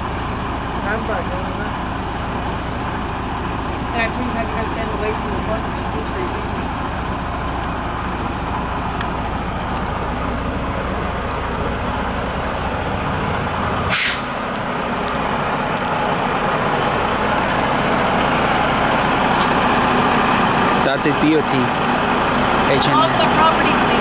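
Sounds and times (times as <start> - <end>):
diesel truck engine running: 0.0 - 24.0
air brake hiss: 13.9 - 14.4.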